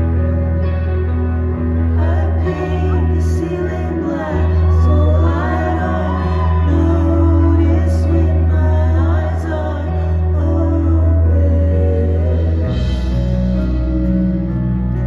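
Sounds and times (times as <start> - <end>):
deep bass line: 0.0 - 15.0
live band music: 0.0 - 15.0
woman singing: 2.0 - 13.1.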